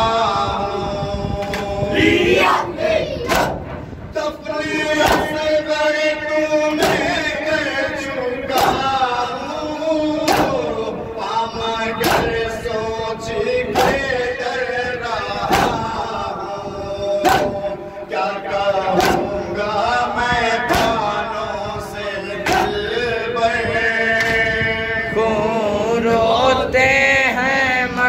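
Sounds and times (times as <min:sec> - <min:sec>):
men chanting in unison: 0:00.0 - 0:28.0
chest beating slaps: 0:03.2 - 0:03.7, 0:05.0 - 0:05.4, 0:06.8 - 0:07.2, 0:08.5 - 0:08.9, 0:10.3 - 0:10.6, 0:12.0 - 0:12.4, 0:13.7 - 0:14.1, 0:15.5 - 0:16.0, 0:17.2 - 0:17.7, 0:18.9 - 0:19.4, 0:20.7 - 0:21.1, 0:22.5 - 0:22.8.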